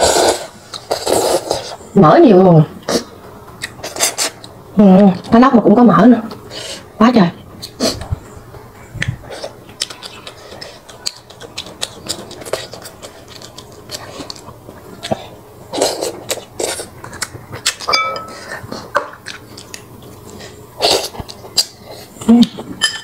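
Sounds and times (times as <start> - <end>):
chewing: 7.6 - 22.7
ringing clink: 17.9 - 18.4.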